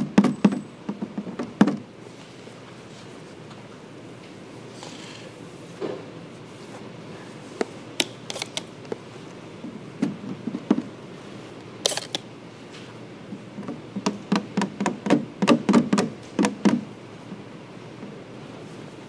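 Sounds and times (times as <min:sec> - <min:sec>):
spray bottle trigger clicks: 0:11.8 - 0:12.2.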